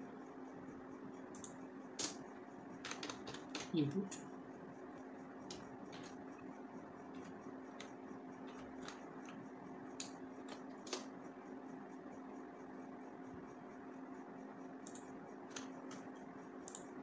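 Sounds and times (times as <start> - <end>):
faint steady hum: 0.0 - 17.0
keyboard keystrokes: 2.8 - 3.8, 5.5 - 6.2, 7.1 - 9.4, 10.0 - 11.1, 14.9 - 16.0.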